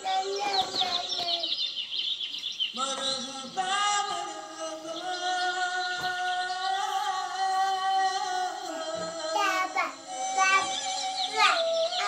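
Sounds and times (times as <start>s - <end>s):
person singing long notes: 2.8s - 12.0s.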